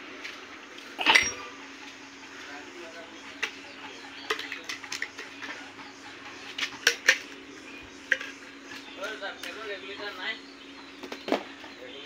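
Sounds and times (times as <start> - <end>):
metal tools clinking: 1.0 - 1.5.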